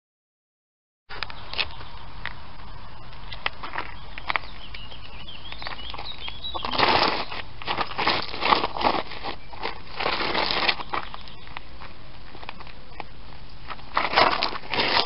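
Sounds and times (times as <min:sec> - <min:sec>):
bird chirping faintly: 0:01.1 - 0:07.4
shoe scraping through gravel: 0:03.2 - 0:12.3, 0:13.6 - 0:15.0.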